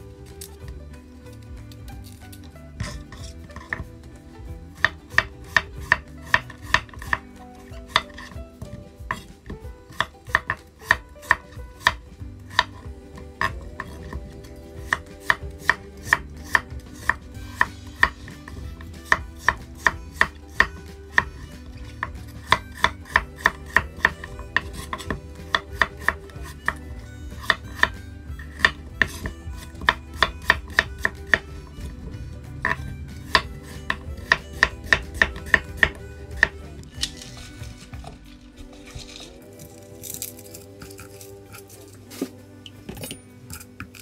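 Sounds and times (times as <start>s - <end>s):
knife chopping on wooden board: 4.8s - 7.2s, 7.8s - 12.8s, 14.9s - 21.3s, 22.0s - 26.8s, 27.4s - 31.5s, 32.6s - 36.6s.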